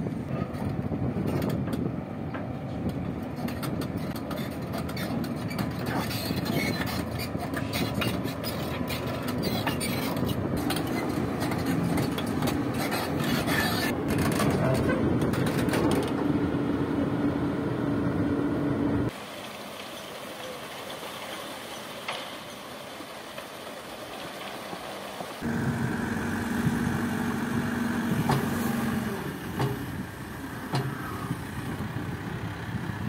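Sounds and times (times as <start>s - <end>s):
excavator diesel engine running: 0.8s - 21.0s, 24.8s - 33.0s.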